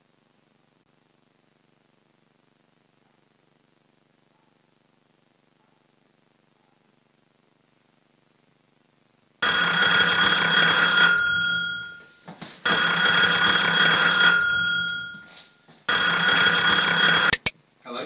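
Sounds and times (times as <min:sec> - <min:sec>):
telephone bell ringing: 0:09.4 - 0:17.5.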